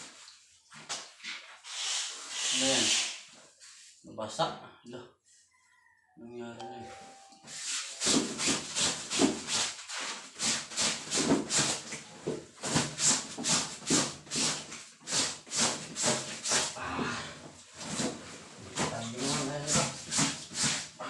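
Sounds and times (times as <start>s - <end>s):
wet clothes scrubbed by hand: 7.5s - 16.8s, 17.8s - 21.0s.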